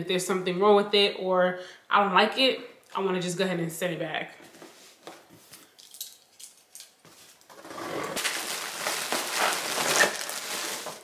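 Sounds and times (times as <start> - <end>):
packaging crinkling and scraping: 7.1 - 11.0.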